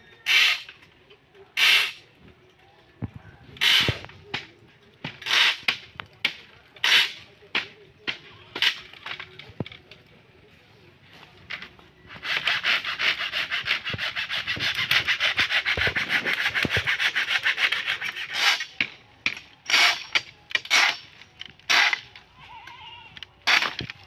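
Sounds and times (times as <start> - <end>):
sharp knocks and cracks: 3.7 - 9.7, 23.4 - 24.0
saw rasping through wood: 12.1 - 18.9.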